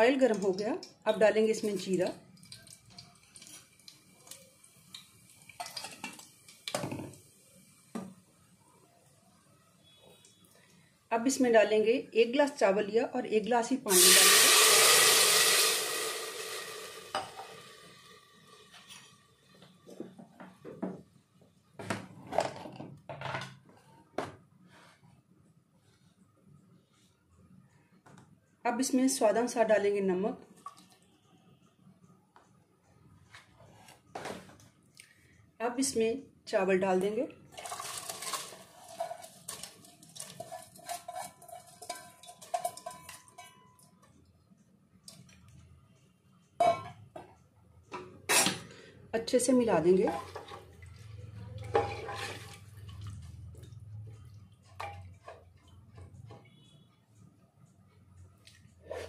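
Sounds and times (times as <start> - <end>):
seeds sizzling in hot oil: 13.9 - 18.7, 37.6 - 42.9
utensil clinking on metal pot: 37.6 - 44.0, 51.6 - 53.3, 54.6 - 56.4.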